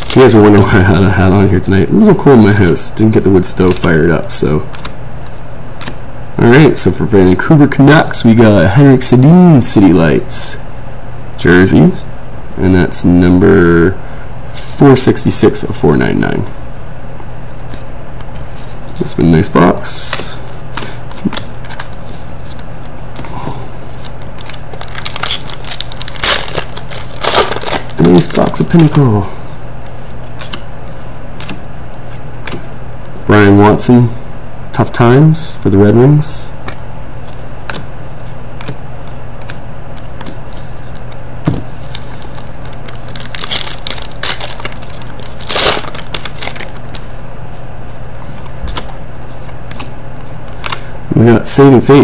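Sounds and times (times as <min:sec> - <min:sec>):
steady low hum: 0:00.0 - 0:52.0
foil wrapper crinkling: 0:23.9 - 0:29.1, 0:41.7 - 0:47.1.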